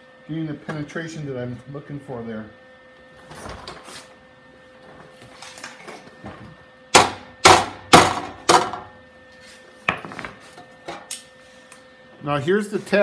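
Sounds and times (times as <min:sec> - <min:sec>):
hammer striking steel panel: 0:07.0 - 0:08.8.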